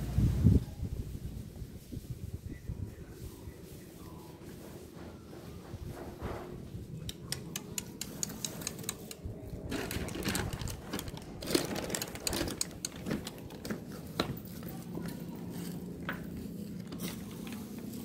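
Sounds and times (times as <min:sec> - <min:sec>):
plastic bag crinkling: 0:09.7 - 0:13.2.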